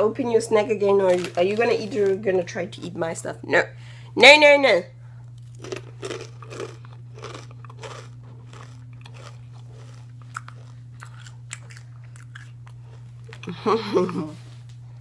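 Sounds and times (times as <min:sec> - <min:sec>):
person chewing crunchy chips: 0:05.2 - 0:14.1.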